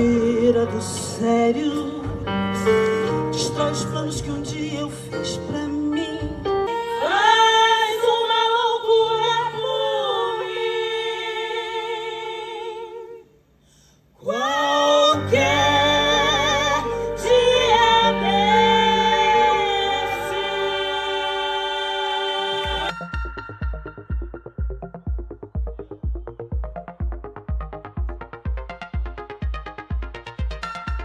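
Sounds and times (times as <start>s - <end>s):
low bass: 0.0s - 6.7s, 15.2s - 31.0s
female voices singing in harmony: 6.7s - 13.3s, 14.2s - 23.0s.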